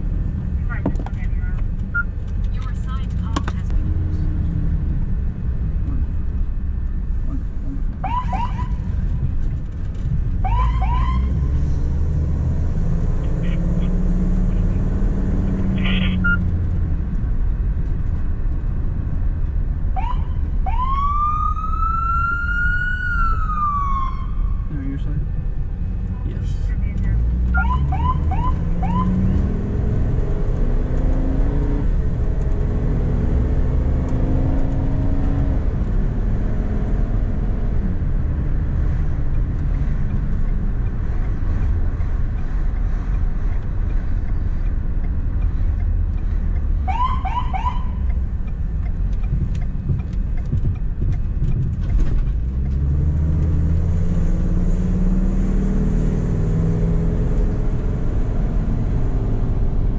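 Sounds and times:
road and engine rumble: 0.0 - 59.9
rising siren chirps: 20.0 - 24.6, 27.6 - 29.5.

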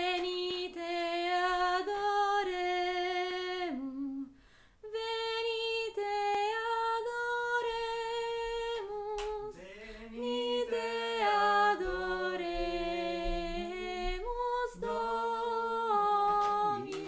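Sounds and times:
person singing unaccompanied: 4.9 - 17.0.

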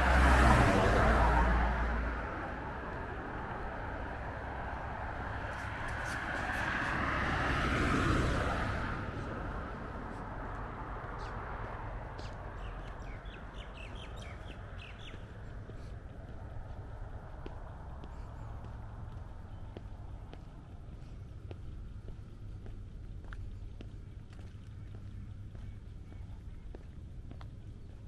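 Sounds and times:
car passing: 0.0 - 28.0
birds chirping: 10.4 - 28.0.

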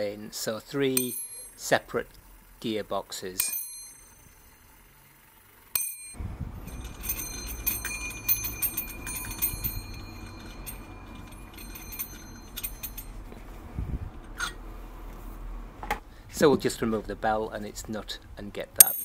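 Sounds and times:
clock bell ringing: 5.8 - 13.5
small metallic clicks: 5.8 - 13.5.

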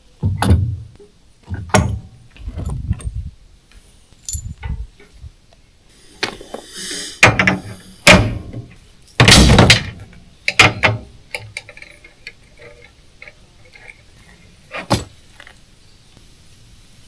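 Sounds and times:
loud knocks and clatters: 7.2 - 11.1.

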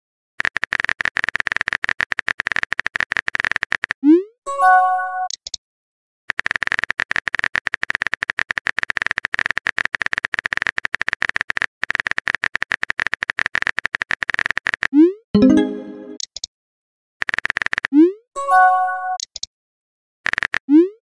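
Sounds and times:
phone keyboard typing clicks: 19.2 - 19.5.

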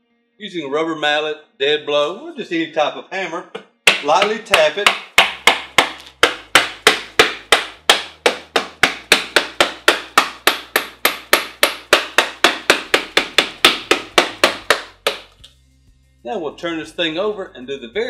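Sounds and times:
rubber mallet tapping plastic: 3.6 - 15.5.

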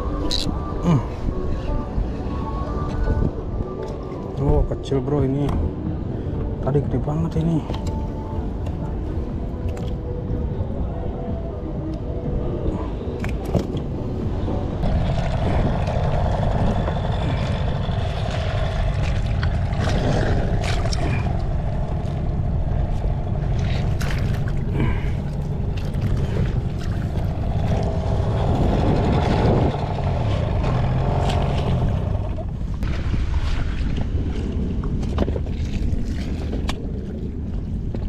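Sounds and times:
wind rumbling on microphone: 0.0 - 38.0
water lapping against rubber boat: 14.8 - 38.0.

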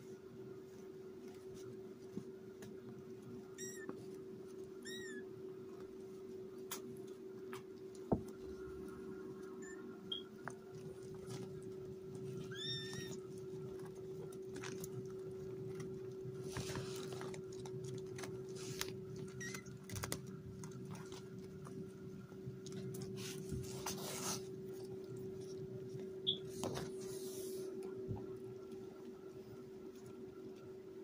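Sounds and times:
soft rustling on a pad: 0.0 - 4.8, 10.4 - 19.1, 20.7 - 31.0
steady low hum: 0.0 - 31.0.

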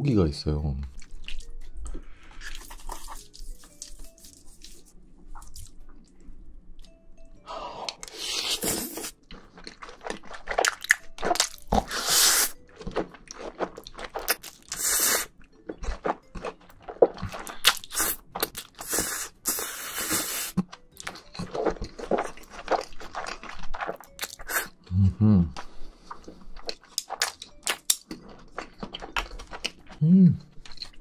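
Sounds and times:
wet chewing and smacking: 0.9 - 6.2, 7.8 - 19.7, 20.5 - 24.9, 25.5 - 31.0
slurping noodles: 11.8 - 12.6, 18.8 - 20.6.

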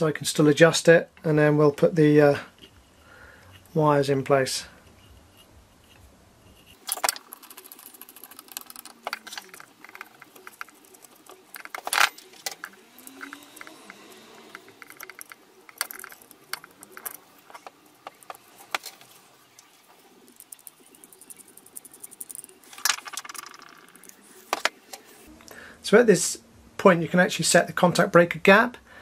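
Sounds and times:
small metal clicks and scrapes: 4.9 - 25.1.

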